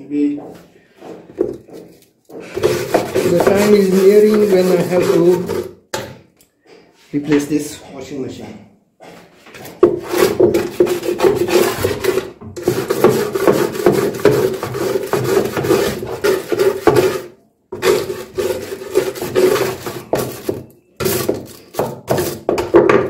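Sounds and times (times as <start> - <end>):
scrub brush scrubbing plastic: 1.9 - 5.7, 10.1 - 22.4.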